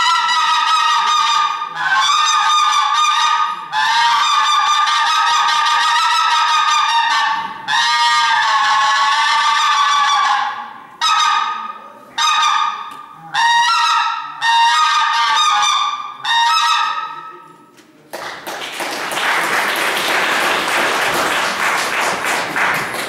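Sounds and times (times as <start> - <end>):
goose call honks: 0.0 - 17.4
applause: 18.1 - 23.0.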